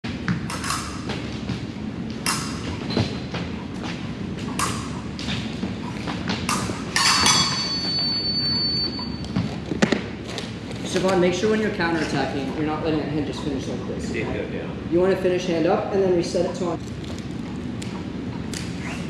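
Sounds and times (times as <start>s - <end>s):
high electronic beep: 7.6s - 9.3s.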